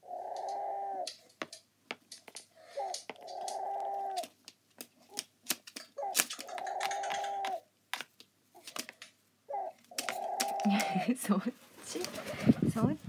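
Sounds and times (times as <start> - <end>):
crow calls from small speaker: 0.0 - 1.2, 2.6 - 4.3, 6.0 - 7.6, 9.5 - 10.7
beak tapping on tablet: 0.3 - 9.1, 9.8 - 11.0.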